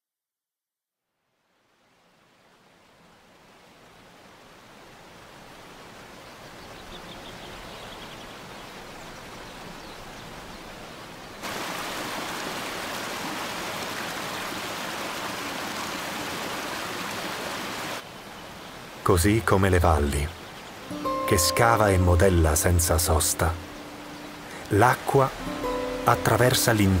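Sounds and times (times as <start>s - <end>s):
river water rushing: 2.0s - 27.0s.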